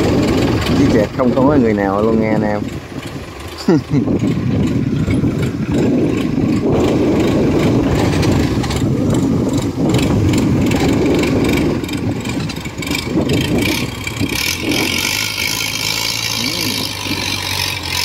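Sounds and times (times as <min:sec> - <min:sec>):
boat motor running: 0:00.0 - 0:18.0.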